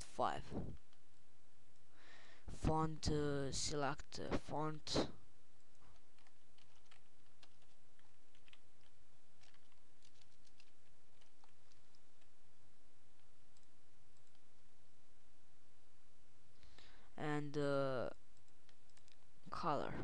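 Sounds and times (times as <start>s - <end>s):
low electrical hum: 0.0s - 20.0s
computer mouse clicks: 5.6s - 12.3s, 18.4s - 19.2s.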